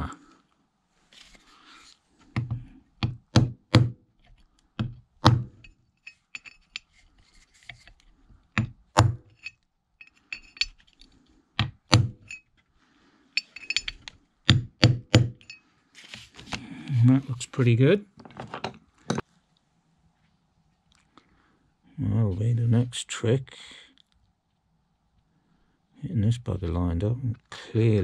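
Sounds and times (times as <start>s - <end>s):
metal clinks: 5.6s - 7.0s, 9.3s - 11.0s, 12.2s - 12.5s, 13.4s - 14.1s, 15.4s - 15.6s.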